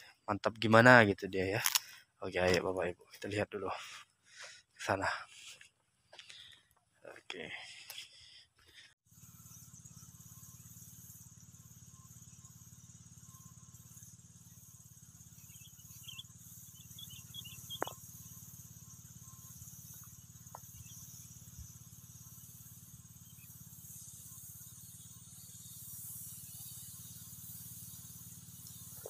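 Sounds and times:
distant spray pump engine hum: 7.5 - 29.0
thin high hiss: 9.1 - 29.0
short high chirps: 15.4 - 18.3.

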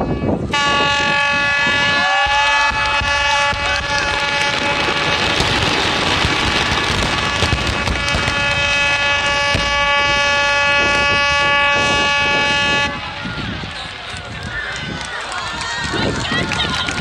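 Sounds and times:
ship horn long blast: 0.5 - 5.4, 7.2 - 13.3
fireworks bangs: 0.5 - 17.0
fireworks crackling: 0.5 - 17.0.

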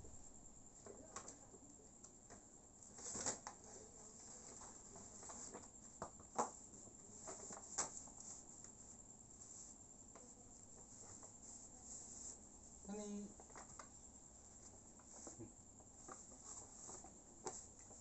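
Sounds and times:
paper crinkles and light taps: 7.2 - 8.8, 16.0 - 18.0.

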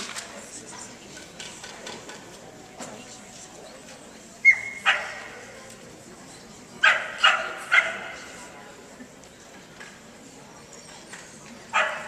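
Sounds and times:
crowd murmur: 0.0 - 12.0
dog barking: 4.8 - 5.3, 6.8 - 8.2, 11.7 - 12.0.

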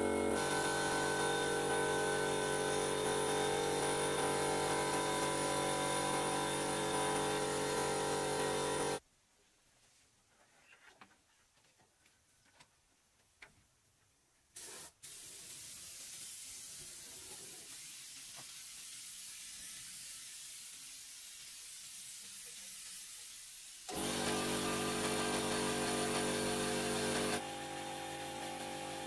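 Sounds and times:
compressed air hissing from hose: 14.6 - 24.0.

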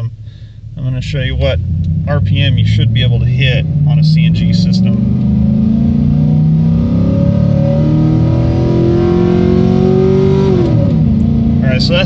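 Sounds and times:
pickup engine revving: 0.0 - 12.0.

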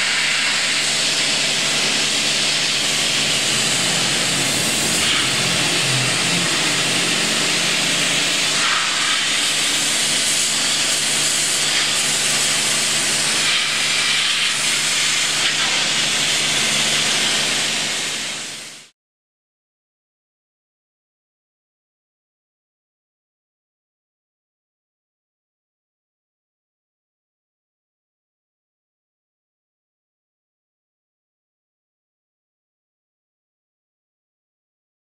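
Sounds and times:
pressure washer spray hissing: 0.0 - 18.8
low hum: 1.2 - 11.4.

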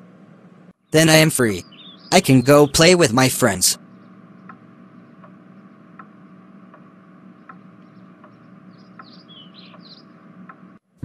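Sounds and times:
low steady hum: 0.0 - 11.0
faint even ticking: 3.8 - 10.8.

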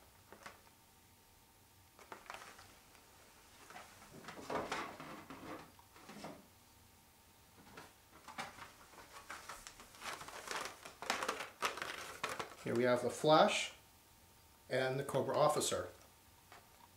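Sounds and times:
cardboard and plastic rustles: 2.0 - 6.4, 7.6 - 13.1.

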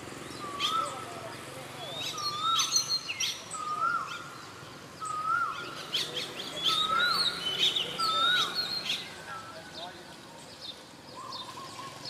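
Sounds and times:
high bird chirps: 1.8 - 9.9.

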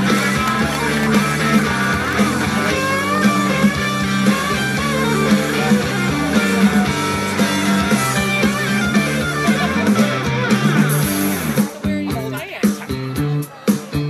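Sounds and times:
rock music with guitar: 0.0 - 14.0.

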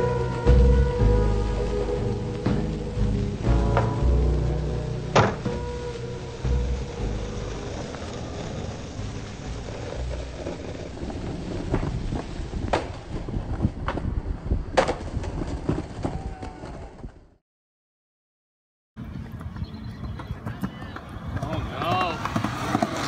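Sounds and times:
skateboard wheels rolling on concrete: 0.0 - 17.4, 19.0 - 23.0
skateboard popping and landing clacks: 5.1 - 5.6, 11.7 - 14.1, 14.7 - 17.1, 19.4 - 23.0.

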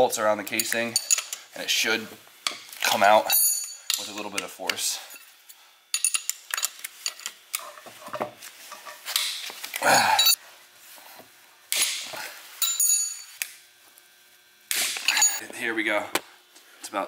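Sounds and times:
wrench clinking on metal casing: 0.5 - 1.4, 3.2 - 4.5, 5.9 - 7.7, 12.6 - 13.4, 15.1 - 15.4.

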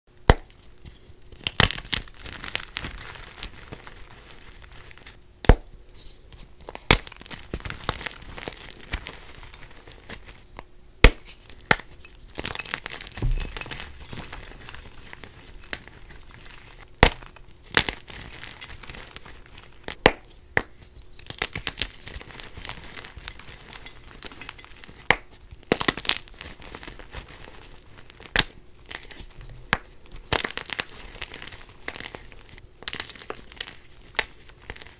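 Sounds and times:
chalk crunching and crumbling: 0.3 - 34.9.

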